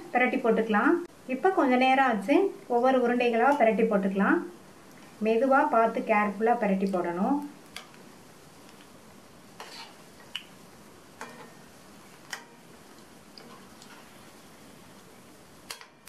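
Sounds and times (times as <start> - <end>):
oil sizzling: 4.6 - 16.0
metal spoon clicking on pan: 15.7 - 16.0.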